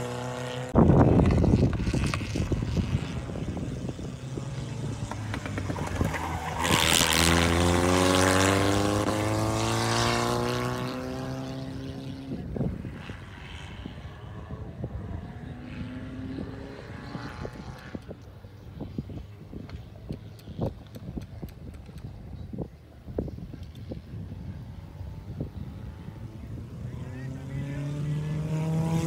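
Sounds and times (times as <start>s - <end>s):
race car engine passing by: 0.0s - 18.0s, 24.4s - 29.0s.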